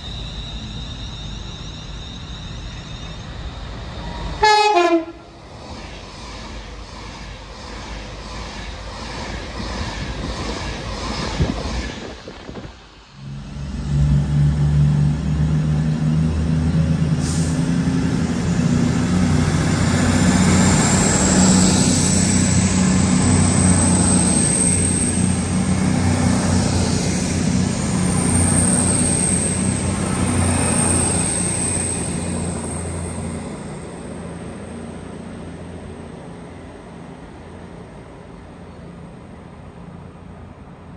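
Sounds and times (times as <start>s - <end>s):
train diesel engines running: 0.0s - 40.9s
train rushing past: 0.0s - 40.9s.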